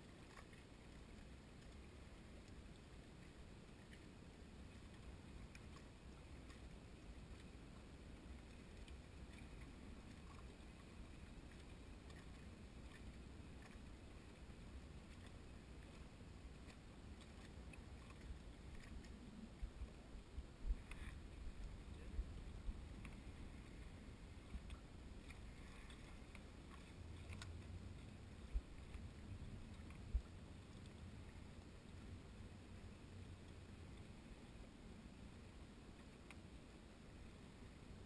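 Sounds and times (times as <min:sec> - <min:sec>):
waves lapping at a dock: 0:00.0 - 0:38.0.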